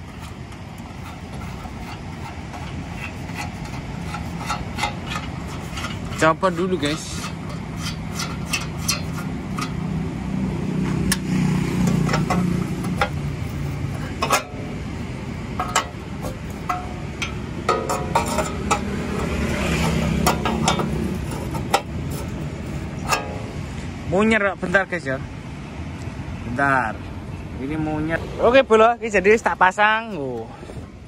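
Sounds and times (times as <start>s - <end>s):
spanner clicking on metal plate: 0.0s - 9.9s, 11.0s - 14.8s, 15.5s - 23.6s
low engine hum: 0.0s - 31.0s.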